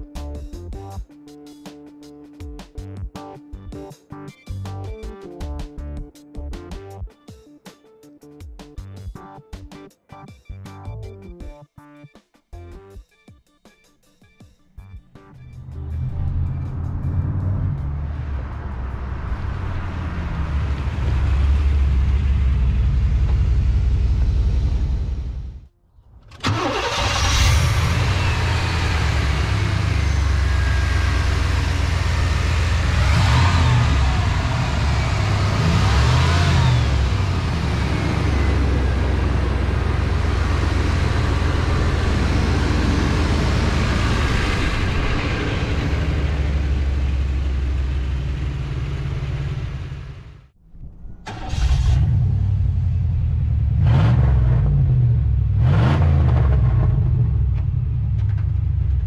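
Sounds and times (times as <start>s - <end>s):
car engine running: 15.4s - 25.6s, 26.4s - 50.5s, 51.3s - 59.0s.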